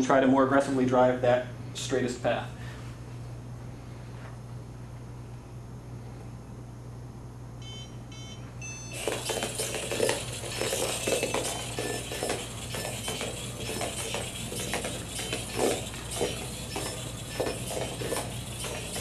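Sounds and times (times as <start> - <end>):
robot buzzer beeps: 7.6 - 17.4
small gearmotors whirring: 8.8 - 19.0.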